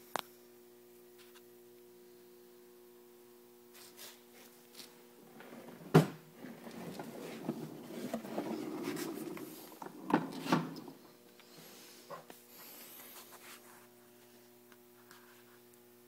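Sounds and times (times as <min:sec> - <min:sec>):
rubbing and scraping handling noise: 0:03.8 - 0:14.0.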